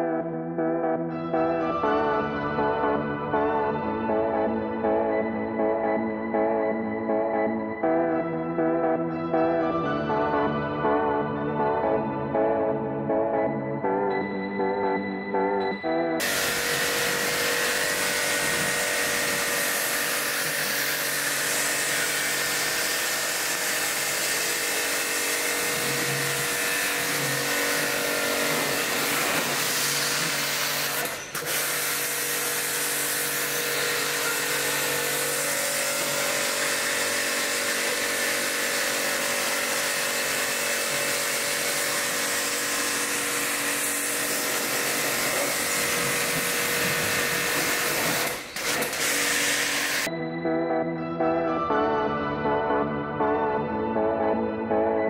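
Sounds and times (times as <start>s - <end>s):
pressure washer motor whine: 16.2s - 50.2s.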